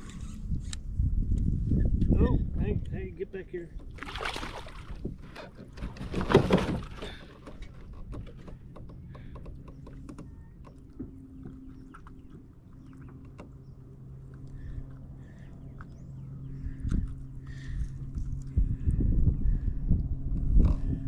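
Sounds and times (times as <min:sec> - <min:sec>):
steady low hum: 0:00.0 - 0:21.0
fish splashing in water: 0:04.0 - 0:05.1.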